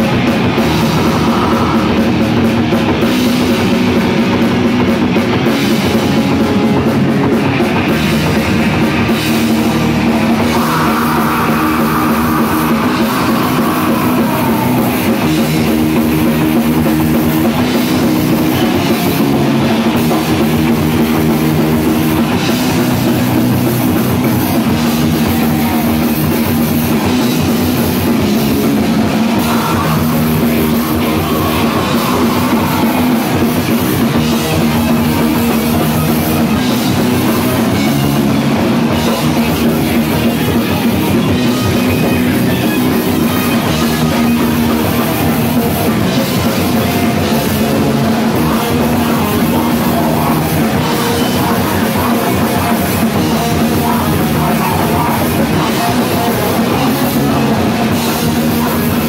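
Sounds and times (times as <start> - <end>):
drum kit: 0.0 - 59.0
electric guitars: 0.0 - 59.0.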